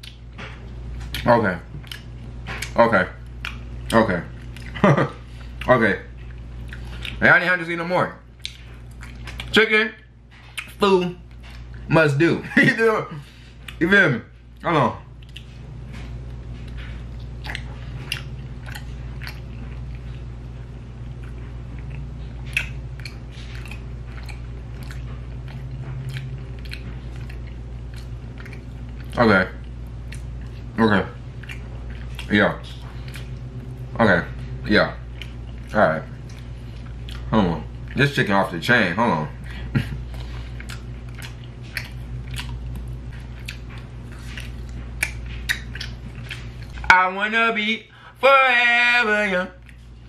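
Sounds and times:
person chewing food: 0.0s - 7.3s, 8.2s - 11.9s, 13.1s - 13.8s, 14.4s - 38.6s, 39.2s - 46.9s, 49.6s - 50.0s
low hum: 0.0s - 50.0s
wet mouth clicks and lip smacks: 21.9s - 29.2s, 40.6s - 46.8s.

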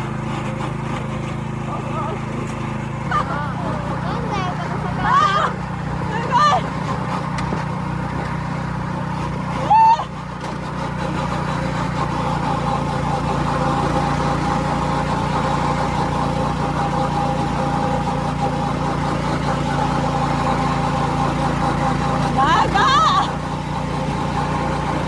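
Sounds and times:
go-kart motor drone: 0.0s - 25.0s
person crying out: 4.9s - 5.6s, 9.6s - 10.2s, 22.4s - 23.4s.

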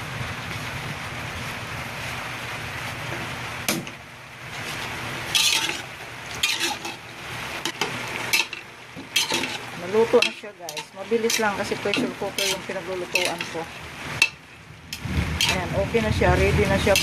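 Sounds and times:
stew simmering with a hiss: 4.3s - 17.0s
spoon scraping metal pot: 5.3s - 14.4s, 15.4s - 15.7s.

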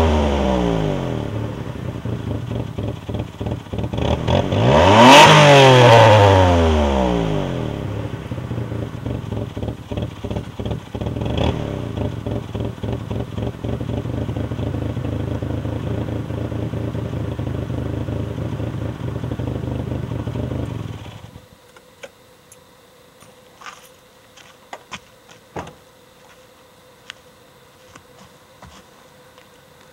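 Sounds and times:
engine exhaust revving and idling: 0.0s - 21.4s.

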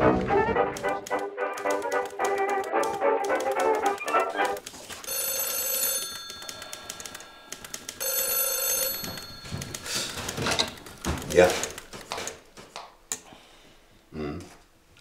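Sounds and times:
brass music: 0.0s - 4.6s
telephone bell ringing: 5.0s - 10.9s.

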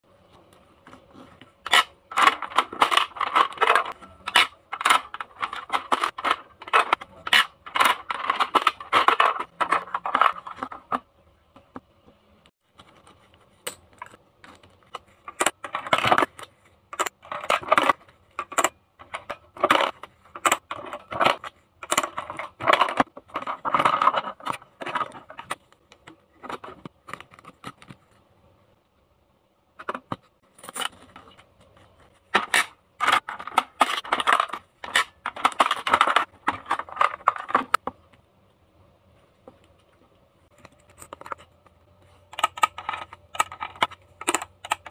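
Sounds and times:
plastic toy bottles clattering: 1.7s - 11.0s, 14.9s - 25.6s, 32.3s - 37.8s.

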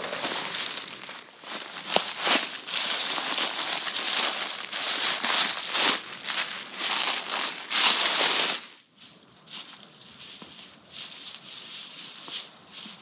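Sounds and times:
dry crinkling rustle: 0.0s - 8.8s.

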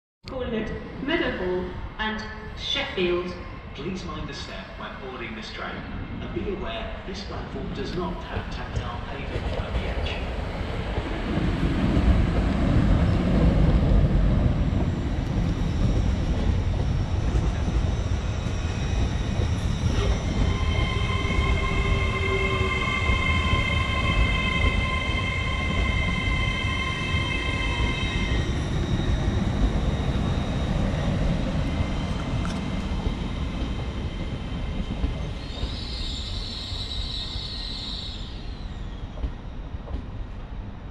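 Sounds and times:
train wheels rumbling on rail: 6.2s - 40.9s
high-pitched ringing whine: 15.0s - 32.9s.

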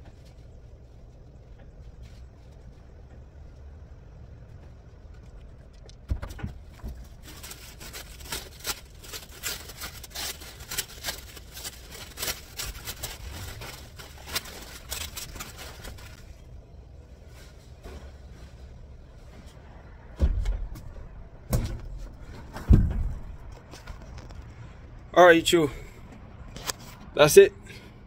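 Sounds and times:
low steady rumble: 0.0s - 28.0s
fabric rustling and thumps: 17.4s - 24.4s.

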